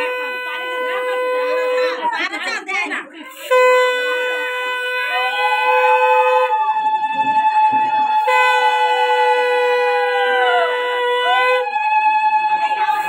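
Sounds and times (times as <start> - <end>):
conch shell blasts: 0.0 - 2.2, 3.3 - 6.6, 8.1 - 11.8.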